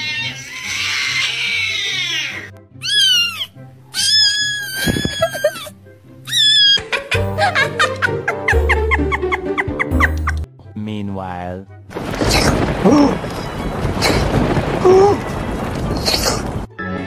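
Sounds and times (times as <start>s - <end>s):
cat meowing: 0.0s - 5.7s, 6.3s - 6.8s
raspy cat cry: 0.0s - 6.9s.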